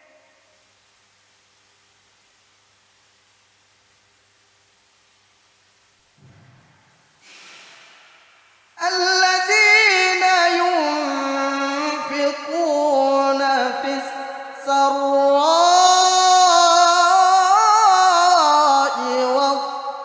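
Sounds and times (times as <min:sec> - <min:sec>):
man chanting: 0:08.8 - 0:20.0.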